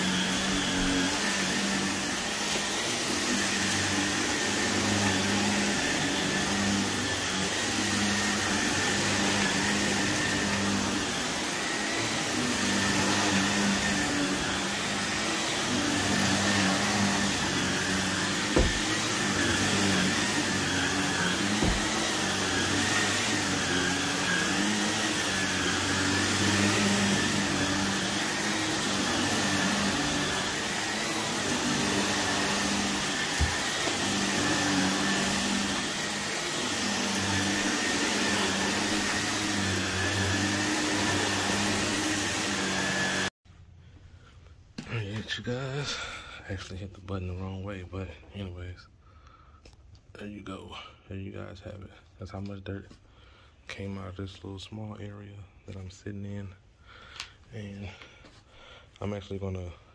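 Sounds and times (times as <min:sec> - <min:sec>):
vacuum cleaner running on carpet: 0:00.0 - 0:43.3.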